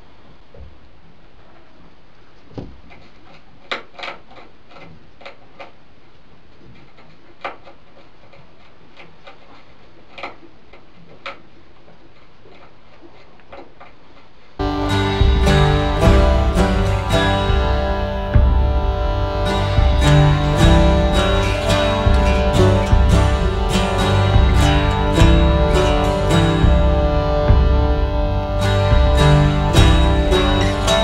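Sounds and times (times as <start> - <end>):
rat gnawing at wood: 6.6 - 14.2
guitar music: 14.6 - 31.0.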